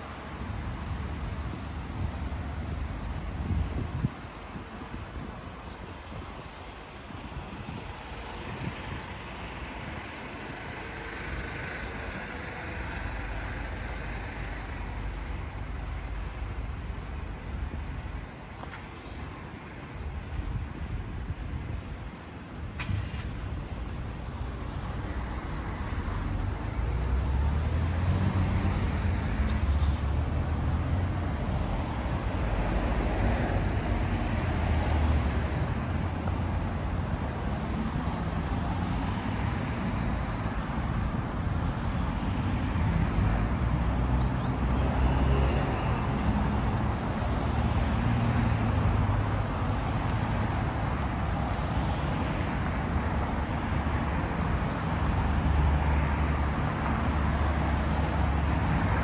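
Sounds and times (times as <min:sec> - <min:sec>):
cars passing: 0:00.0 - 0:59.0.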